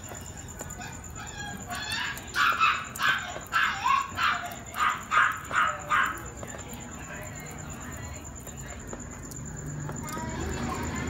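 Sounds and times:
dog barking rapidly: 0:02.4 - 0:06.2.

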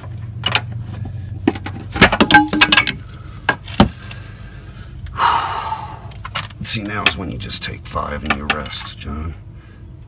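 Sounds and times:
metal clinks and knocks: 0:01.4 - 0:03.1.

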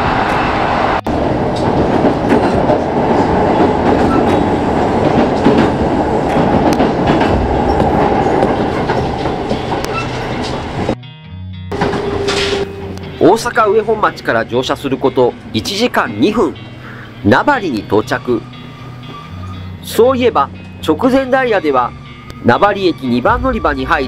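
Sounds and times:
train rolling rumble: 0:00.0 - 0:11.0, 0:11.7 - 0:17.2, 0:23.3 - 0:24.0
wheels clacking over rail joints: 0:01.1 - 0:11.0, 0:11.7 - 0:13.1.

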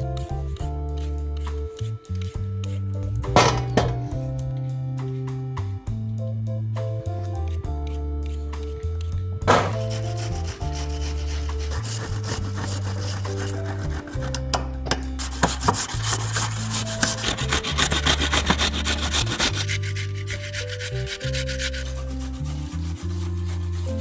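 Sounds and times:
radish rasping on metal grater: 0:09.7 - 0:14.4, 0:15.2 - 0:24.0.

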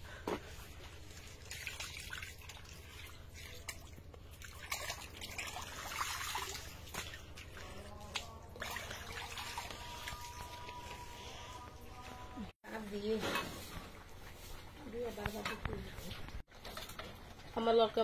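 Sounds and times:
small water splashes: 0:01.1 - 0:10.7.

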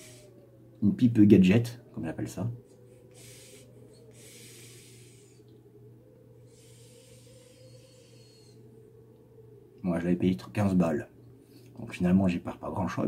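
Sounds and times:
soft pipe breaths: 0:00.0 - 0:00.8, 0:02.6 - 0:09.8, 0:11.2 - 0:11.8
low electrical hum: 0:00.0 - 0:13.0.

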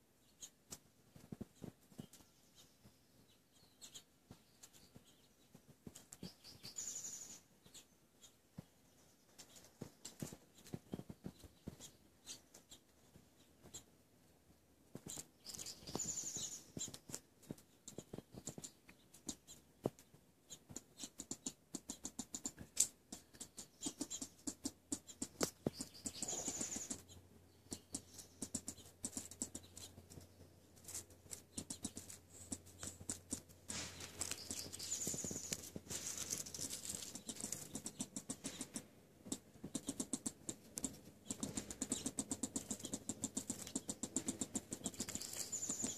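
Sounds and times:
rodent digging and scratching: 0:14.9 - 0:45.9.

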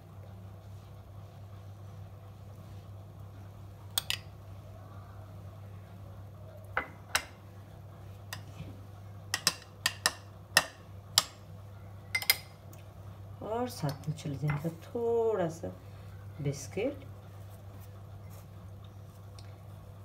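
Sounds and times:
steady low hum: 0:00.0 - 0:20.0
metal spoon clinking on glass: 0:12.1 - 0:12.5.

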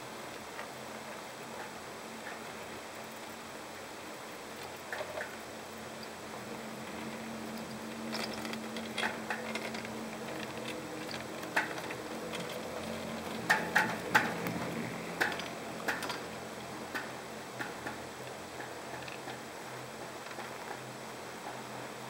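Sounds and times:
faint steady hum: 0:00.0 - 0:22.0
chairlift clicks and ticks: 0:04.6 - 0:21.6.

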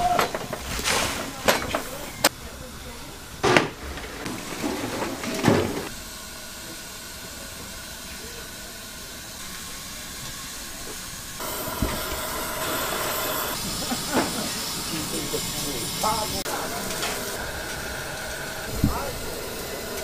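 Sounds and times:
hiss of steam and flame: 0:00.0 - 0:20.0.

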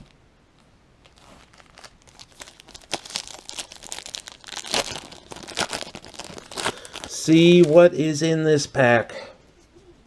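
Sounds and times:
crinkly wrapper tearing: 0:01.0 - 0:08.0.

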